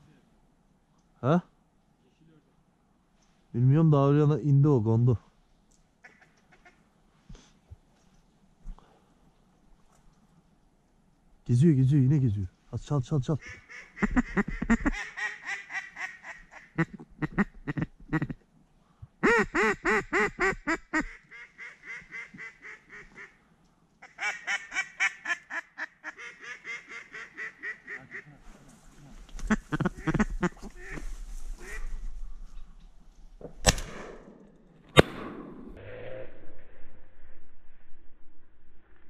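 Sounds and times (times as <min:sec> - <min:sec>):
duck call quacks: 0:13.4 - 0:18.4, 0:19.2 - 0:23.3, 0:24.0 - 0:28.4, 0:29.5 - 0:31.0
shotgun shot: 0:33.6 - 0:35.8.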